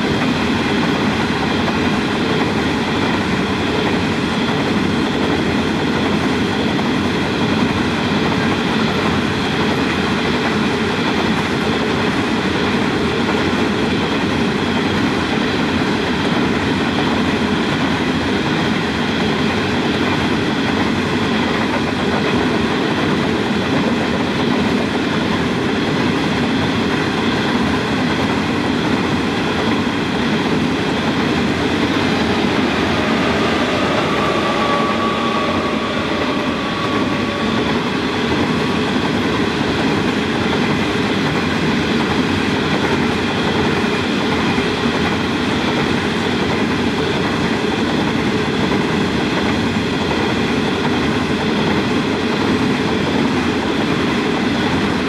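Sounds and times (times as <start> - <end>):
train wheels rumbling on rails: 0.0 - 55.0
locomotive braking whine: 28.8 - 41.4.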